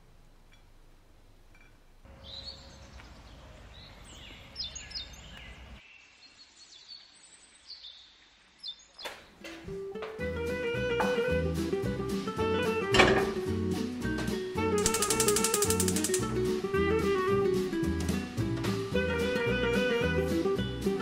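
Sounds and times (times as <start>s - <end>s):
outdoor background noise: 0.0s - 10.4s
songbirds chirping and singing: 2.1s - 9.4s
guitar music: 9.7s - 21.0s
sharp clicks: 14.8s - 16.3s.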